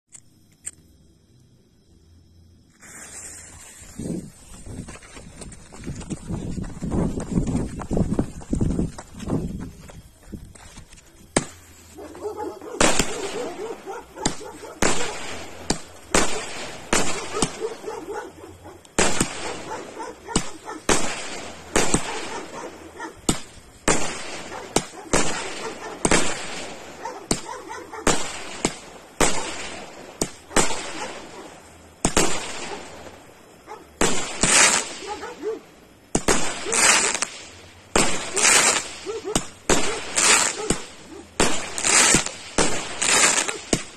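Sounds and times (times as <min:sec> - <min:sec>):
fireworks bangs with crackle: 0:10.7 - 0:12.0, 0:12.8 - 0:17.9, 0:18.9 - 0:35.2, 0:36.1 - 0:43.9.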